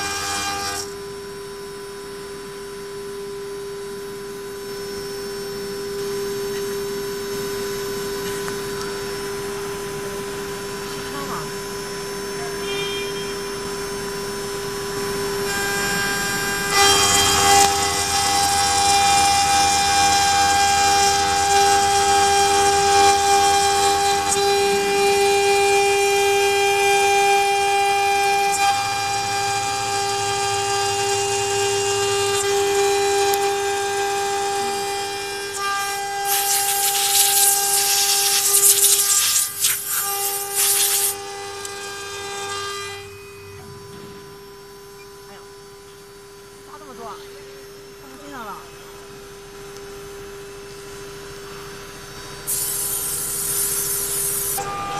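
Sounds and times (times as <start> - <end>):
end mill cutting metal: 0.0 - 54.9
router spindle whining: 0.0 - 54.9
loud hiss with clicks: 35.5 - 41.8.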